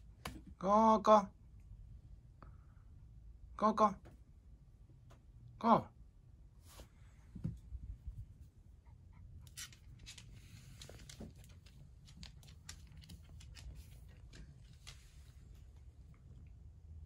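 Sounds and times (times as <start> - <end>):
dog claws ticking on wooden floor: 9.6 - 15.2.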